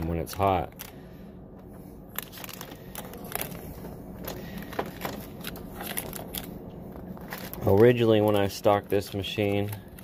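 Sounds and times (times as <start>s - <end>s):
wrapper crinkles: 2.1s - 10.0s.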